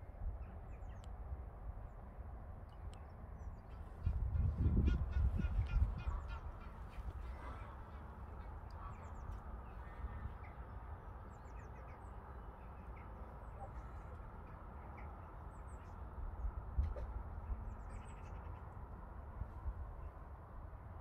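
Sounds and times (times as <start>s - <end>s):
low steady rumble: 0.0s - 21.0s
geese calling: 3.7s - 14.2s.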